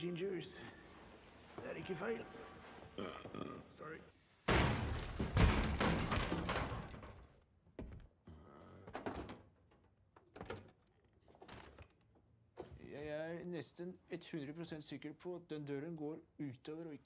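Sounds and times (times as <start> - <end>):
clattering crash: 4.5 - 7.4
door banging: 4.5 - 8.1.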